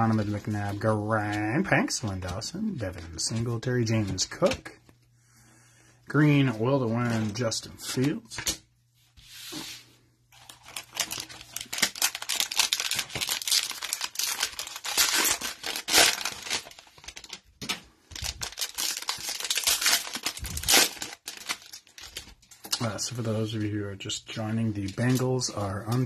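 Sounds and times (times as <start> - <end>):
cellophane wrapper tearing: 10.4 - 22.8.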